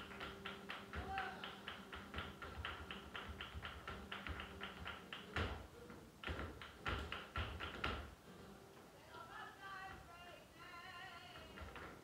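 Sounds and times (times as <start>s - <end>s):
hand clapping: 0.0s - 5.6s, 6.2s - 8.1s
flamenco footwork: 0.0s - 10.3s, 11.0s - 12.0s.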